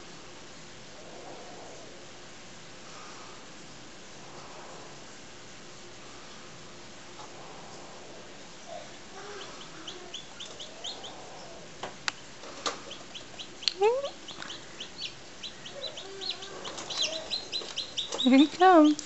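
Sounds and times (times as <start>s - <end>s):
chicks peeping: 8.7s - 19.0s.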